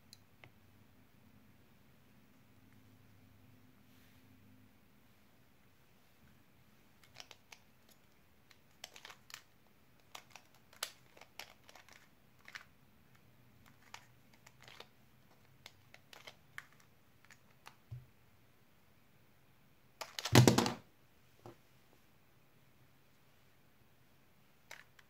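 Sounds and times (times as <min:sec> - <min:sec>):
puzzle cube clicking: 0:07.0 - 0:12.7, 0:13.6 - 0:17.8, 0:20.0 - 0:20.7.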